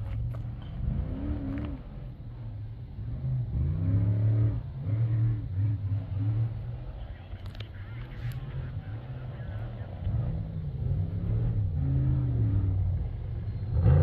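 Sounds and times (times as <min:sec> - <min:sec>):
off-road vehicle engine revving: 0:00.0 - 0:14.0.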